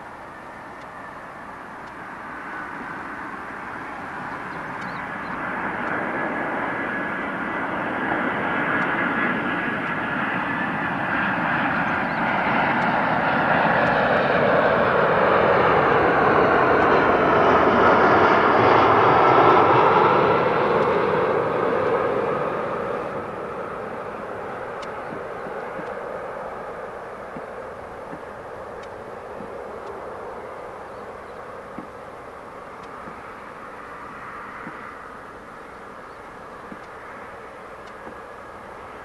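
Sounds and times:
jet engines roaring: 0.0s - 39.0s.

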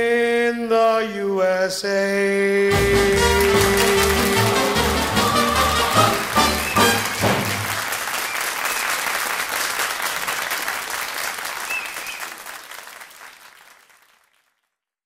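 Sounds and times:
audience applauding: 2.7s - 14.7s.

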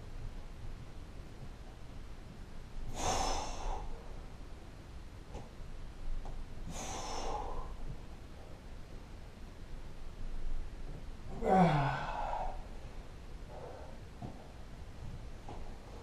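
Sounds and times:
man exhaling forcefully: 2.9s - 3.9s, 6.7s - 7.8s, 11.3s - 12.6s.

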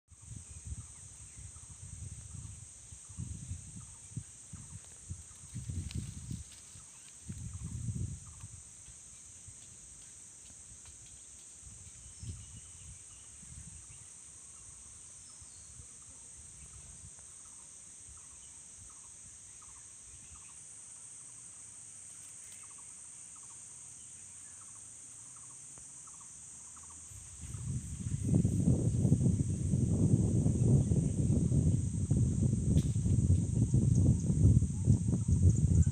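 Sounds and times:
low rumble on microphone: 0.1s - 8.6s, 27.1s - 35.9s
high-pitched insect chorus: 0.1s - 35.9s.

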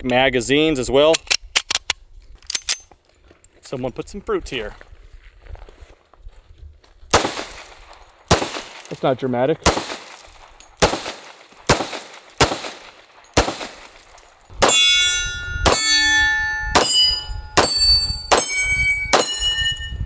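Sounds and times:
pistol shots: 7.1s - 9.0s, 9.6s - 14.8s, 16.8s - 17.0s, 17.6s - 19.4s
ringing clang of steel target: 14.6s - 20.0s.

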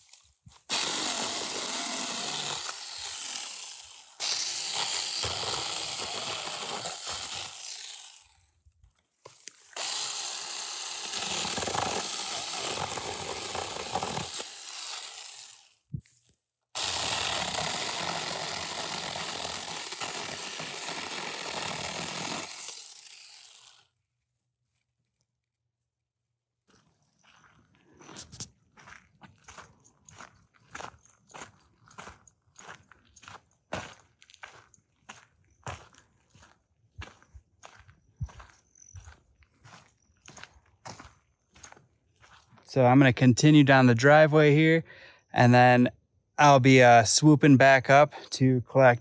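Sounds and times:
mini chainsaw cutting wood: 0.0s - 8.6s, 9.3s - 16.0s, 16.8s - 24.0s.

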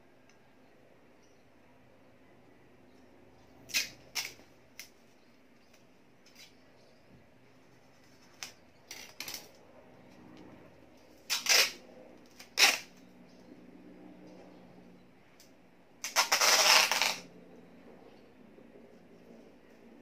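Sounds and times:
masking tape ripping off roll: 3.7s - 4.9s, 8.1s - 9.6s, 11.3s - 13.0s, 16.0s - 17.3s.

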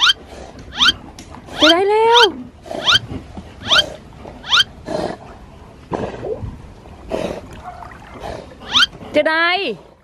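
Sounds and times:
dog whining: 0.0s - 1.0s, 1.6s - 3.0s, 3.6s - 4.7s, 8.7s - 8.9s.

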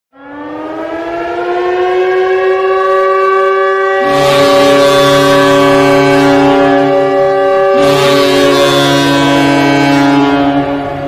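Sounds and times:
goal horn: 3.9s - 11.0s.

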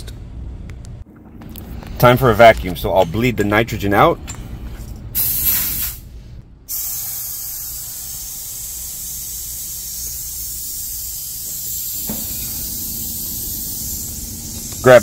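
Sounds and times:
gas hissing through hoses: 6.7s - 15.0s.

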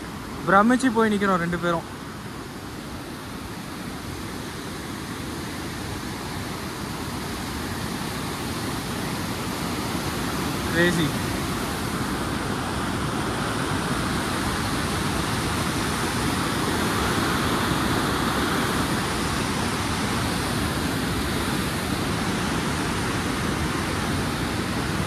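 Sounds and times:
river rushing: 0.0s - 25.0s.

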